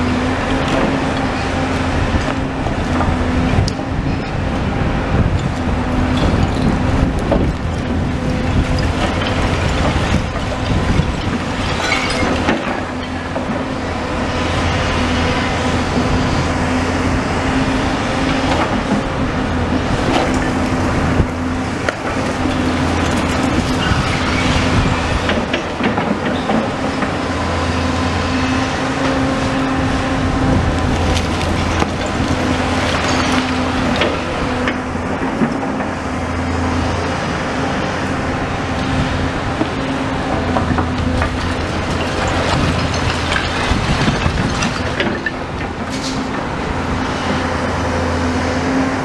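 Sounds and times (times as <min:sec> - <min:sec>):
excavator engine and hydraulic drone: 0:00.0 - 0:49.0
rubble clattering: 0:40.6 - 0:45.4.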